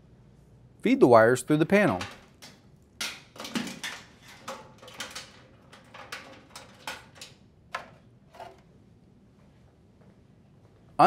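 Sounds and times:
wires clicking and rustling: 1.9s - 8.7s.

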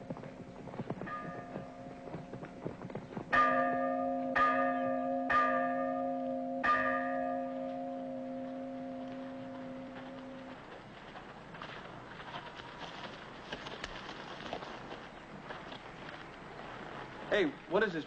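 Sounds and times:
horses' hooves clopping: 0.0s - 4.0s, 7.6s - 18.0s
church bell tolling: 1.1s - 2.1s, 3.3s - 10.6s.

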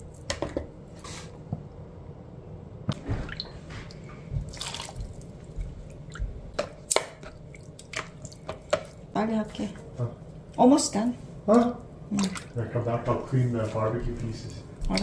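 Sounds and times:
liquid pouring and splashing: 4.4s - 9.1s, 12.1s - 12.6s.

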